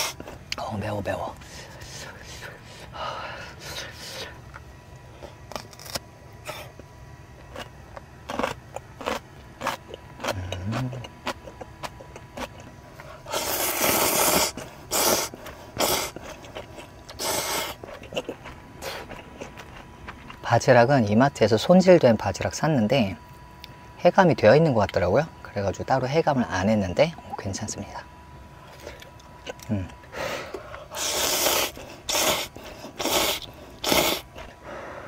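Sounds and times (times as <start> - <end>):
slurping noodles: 13.3 - 16.3, 17.1 - 17.8, 30.9 - 34.4.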